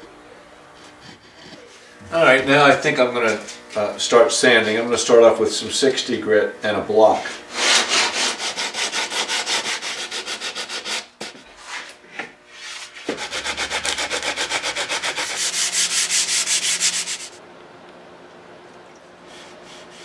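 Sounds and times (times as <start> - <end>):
sandpaper scraping wood: 7.1 - 17.4, 19.3 - 20.0.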